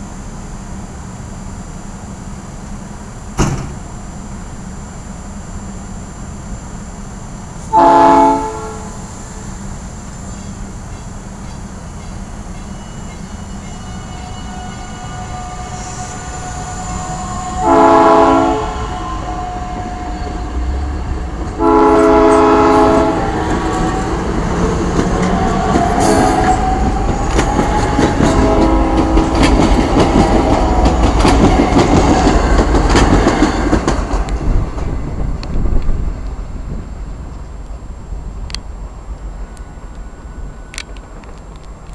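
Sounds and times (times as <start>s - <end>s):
train horn blasts: 7.7s - 9.0s, 12.7s - 23.8s, 25.9s - 26.9s, 27.5s - 31.0s
train wheels clicking over rail joints: 10.3s - 13.8s, 22.2s - 37.5s.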